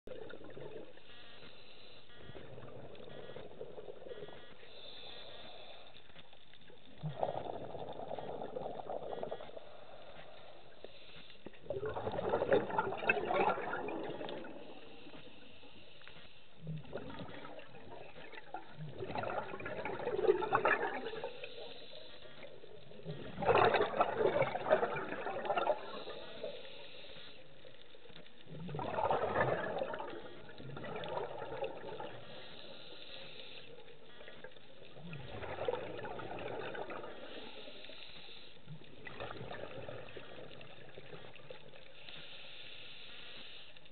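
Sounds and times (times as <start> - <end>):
underwater exhaled bubbles gushing: 0.1 - 1.3, 2.1 - 4.8, 6.7 - 10.3, 11.5 - 15.2, 16.6 - 26.8, 27.4 - 33.0, 33.6 - 38.0, 38.6 - 42.0.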